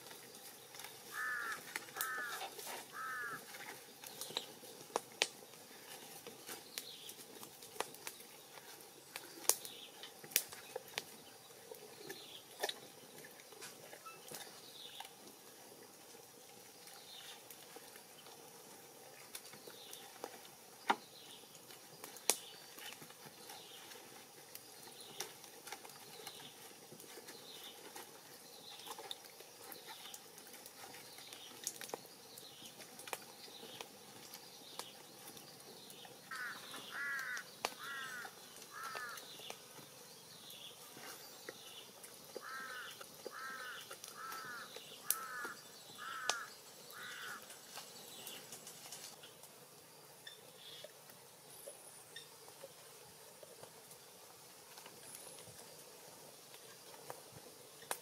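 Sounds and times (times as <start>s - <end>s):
harsh bird calls: 1.1s - 3.5s, 36.2s - 39.6s, 42.4s - 48.5s.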